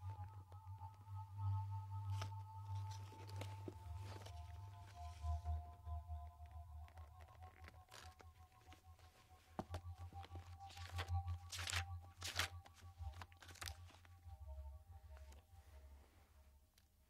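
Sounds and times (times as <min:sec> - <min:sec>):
low steady hum: 0:00.0 - 0:17.0
papery rustling sweeps: 0:07.8 - 0:14.1.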